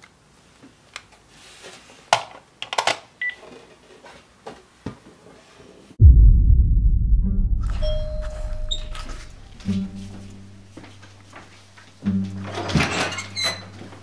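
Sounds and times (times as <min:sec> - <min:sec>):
loud low rumble: 0:06.0 - 0:11.8
short beep: 0:07.6 - 0:10.6.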